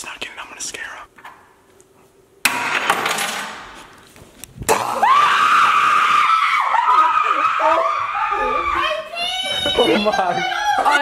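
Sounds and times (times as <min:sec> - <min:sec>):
woman screaming: 0:04.9 - 0:11.0.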